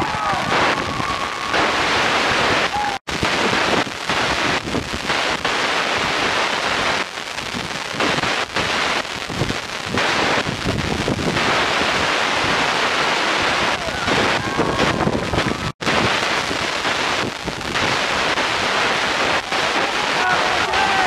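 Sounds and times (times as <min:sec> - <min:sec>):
wind buffeting microphone: 0:09.2 - 0:19.0.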